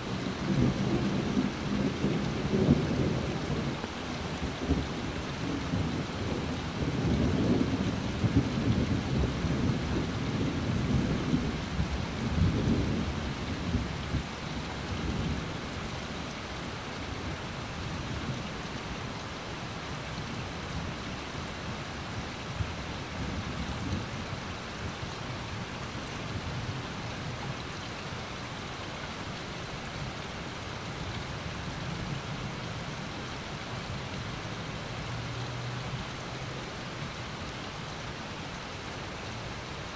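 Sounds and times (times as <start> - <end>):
rain falling on grass and trees: 0.0 - 39.9
low roll of thunder: 0.2 - 15.6.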